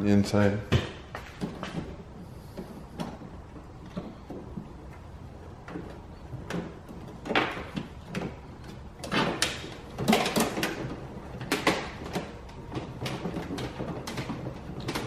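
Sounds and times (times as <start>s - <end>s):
plastic trim clicks and knocks: 5.6s - 15.0s.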